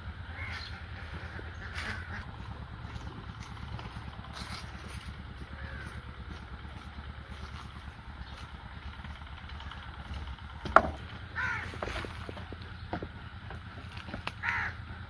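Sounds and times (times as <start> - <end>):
low engine rumble: 0.0 - 15.0
crow cawing: 0.3 - 2.2, 5.4 - 6.2, 10.9 - 12.4, 14.2 - 14.9.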